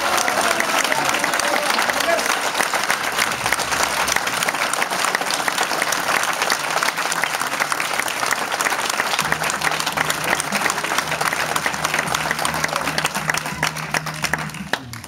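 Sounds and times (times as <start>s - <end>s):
audience applauding: 0.0s - 15.0s.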